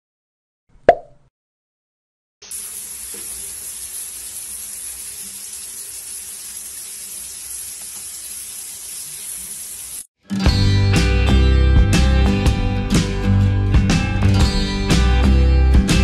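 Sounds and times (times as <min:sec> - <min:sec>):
shower spray on tiled floor: 0:02.4 - 0:10.1.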